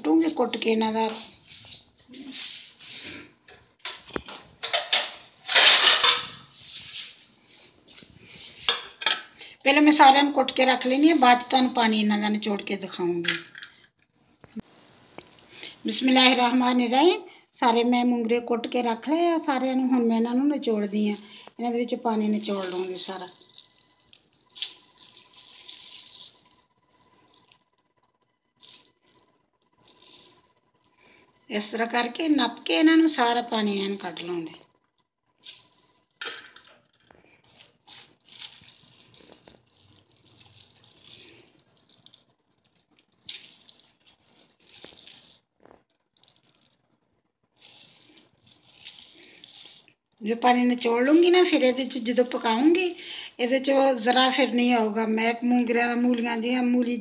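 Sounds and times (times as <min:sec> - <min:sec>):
wet squelching and dripping: 0:22.6 - 0:31.4, 0:35.2 - 0:50.2.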